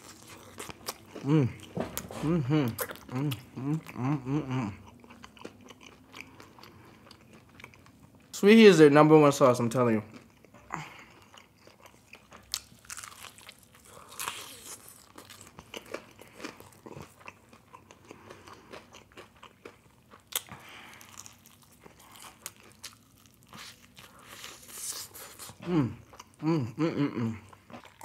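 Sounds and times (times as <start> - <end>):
crunchy bites of fried chicken: 12.2 - 25.4.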